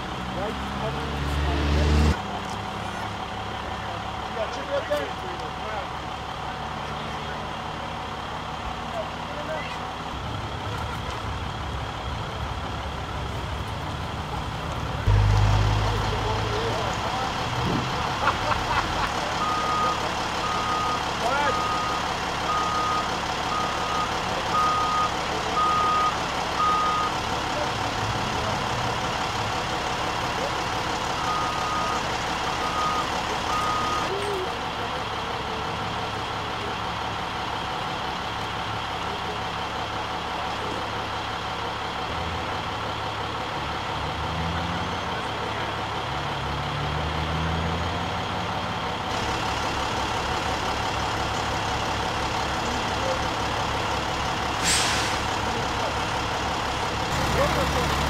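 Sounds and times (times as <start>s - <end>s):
truck engine running and revving: 0.0s - 58.0s
reversing alarm beeping: 19.4s - 27.2s, 31.2s - 32.0s, 32.6s - 34.1s.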